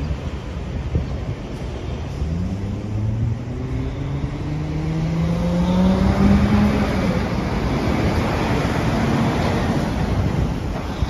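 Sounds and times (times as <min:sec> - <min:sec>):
traffic noise: 0:00.0 - 0:11.0
vehicle engine accelerating: 0:02.0 - 0:10.7.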